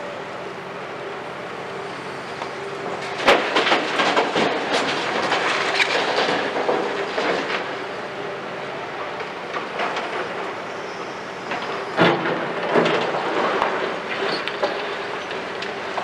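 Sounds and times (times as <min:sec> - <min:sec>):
excavator running: 0:00.0 - 0:16.0
rubble clattering into truck bed: 0:03.2 - 0:07.6.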